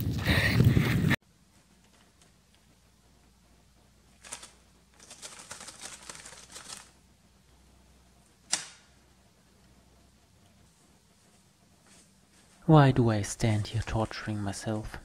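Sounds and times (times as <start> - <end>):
plastic bag crinkling: 4.2 - 7.0
sharp click: 8.5 - 8.9.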